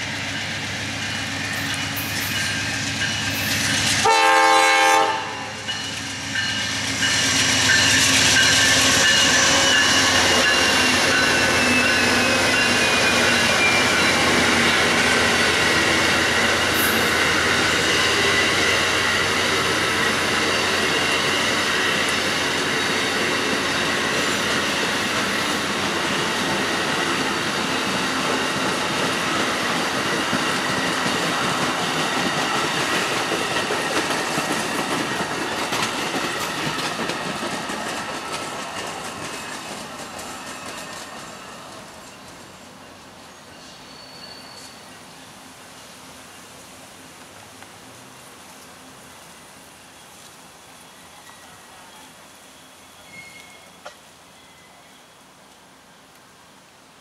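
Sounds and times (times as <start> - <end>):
train cars rumbling on rails: 0.0 - 45.2
high-pitched wheel squeal: 43.6 - 44.8, 52.5 - 55.2.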